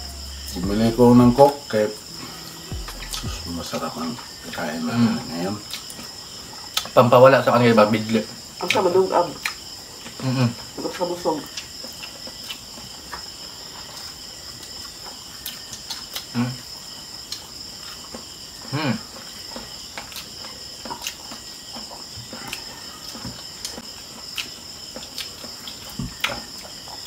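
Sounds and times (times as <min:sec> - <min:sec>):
short low vocal sound: 0:00.0 - 0:03.6
crickets chirping: 0:00.0 - 0:27.0
people eating with hands: 0:04.6 - 0:27.0.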